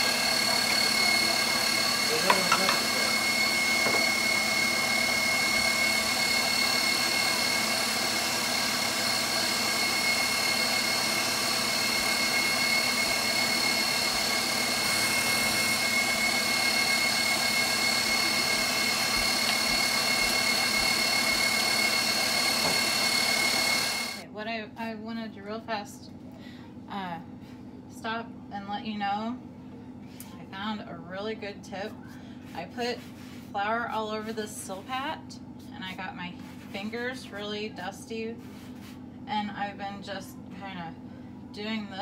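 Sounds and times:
stand mixer motor whine: 0.0 - 24.2.

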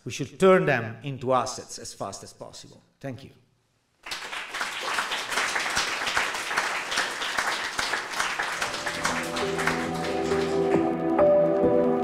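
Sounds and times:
audience applauding: 4.0 - 11.0
music with held notes: 8.6 - 12.0.

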